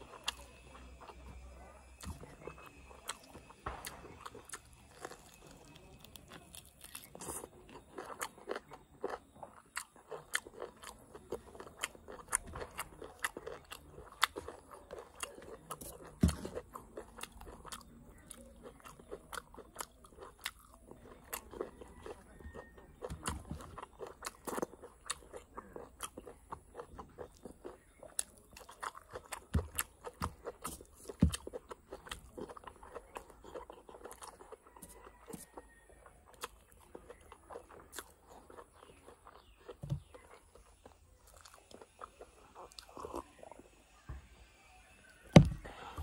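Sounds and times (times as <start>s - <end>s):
person chewing wet food: 0.0s - 46.0s.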